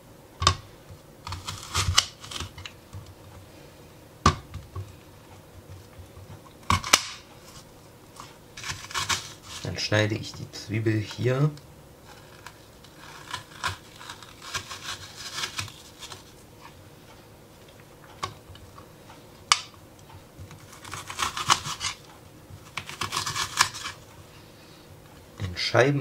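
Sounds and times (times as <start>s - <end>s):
knife slicing onion on board: 1.3s - 2.7s, 5.6s - 7.2s, 8.2s - 9.7s, 12.4s - 16.3s, 20.4s - 22.0s, 22.6s - 24.0s.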